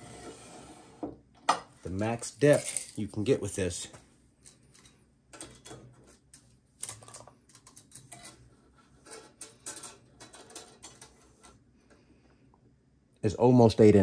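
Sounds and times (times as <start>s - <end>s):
tape measure clicking and rattling: 2.5s - 3.1s.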